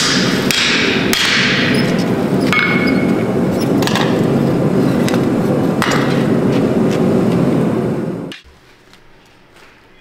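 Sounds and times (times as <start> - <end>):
hammer striking metal on anvil: 0.0 - 1.9, 2.5 - 4.0
metal knocks and clanks: 0.0 - 7.4
steady low roar: 0.0 - 8.3.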